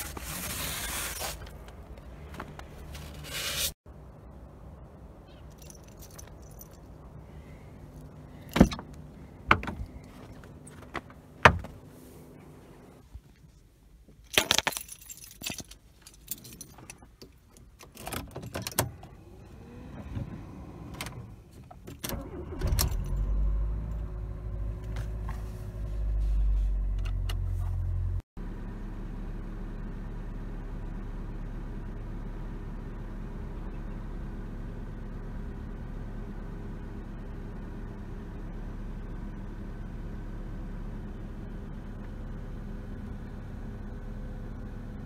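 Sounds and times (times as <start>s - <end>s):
car engine idling: 3.9s - 13.0s
keys jangling: 5.5s - 6.8s, 14.6s - 17.0s
car door shutting: 10.9s - 11.8s
car door clicks and knocks: 11.4s - 11.8s
car engine starting: 17.8s - 45.0s.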